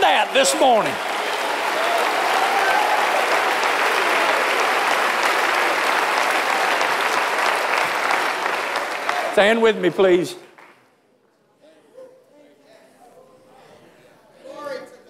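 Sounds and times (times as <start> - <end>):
crowd applauding: 0.0 - 10.8.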